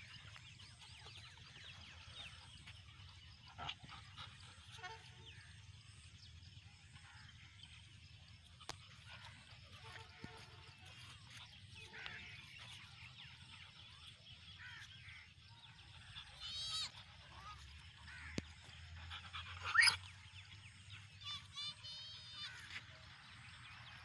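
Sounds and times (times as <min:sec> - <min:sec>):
dogs yelping: 0:18.4 - 0:20.2.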